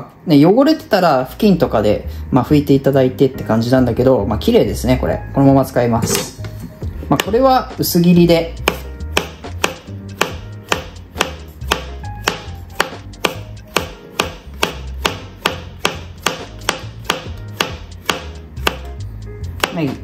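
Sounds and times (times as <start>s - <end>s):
knife tapping on cutting board: 8.6s - 18.9s.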